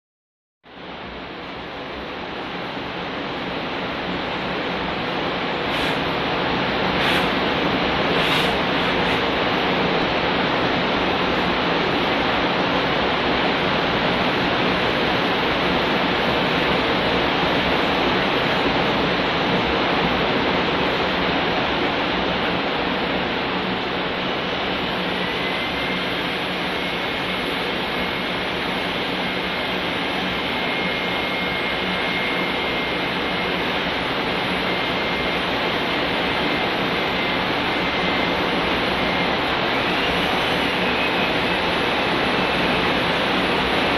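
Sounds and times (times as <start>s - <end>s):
electric drill whirring: 6.9s - 9.3s, 24.7s - 43.9s.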